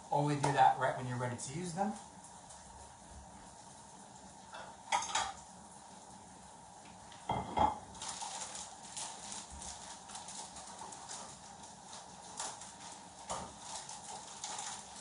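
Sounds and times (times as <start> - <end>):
plate set down on worktop: 7.3 - 7.8
plastic packet crinkling: 7.9 - 15.0.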